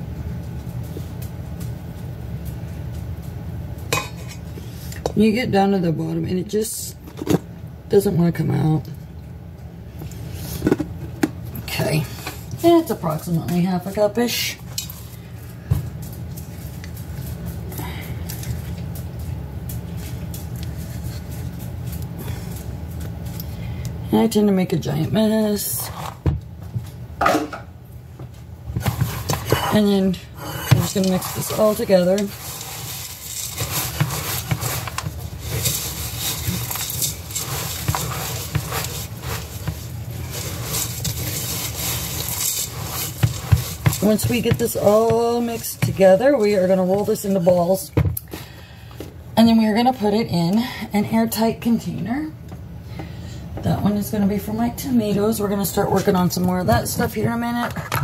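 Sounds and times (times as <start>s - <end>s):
steady low hum: 0.0s - 58.0s
spatula scraping a cup: 30.7s - 46.8s.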